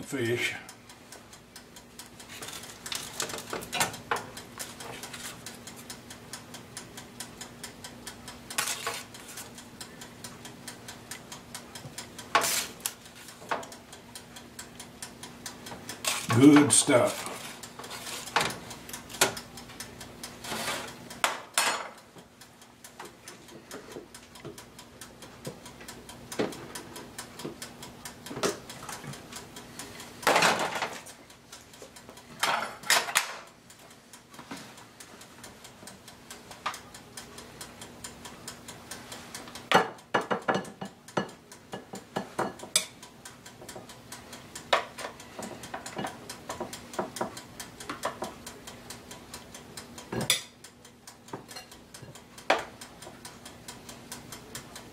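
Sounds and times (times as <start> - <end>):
faint steady ticking: 0.0 - 54.9
metal spoon scraping a pan: 8.6 - 9.5, 12.4 - 12.8, 20.4 - 21.0.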